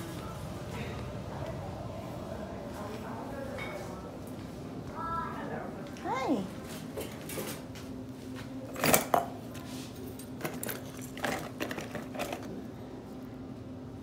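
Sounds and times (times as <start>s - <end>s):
steady low hum: 0.0s - 14.0s
ornaments clinking in plastic bin: 10.3s - 12.5s.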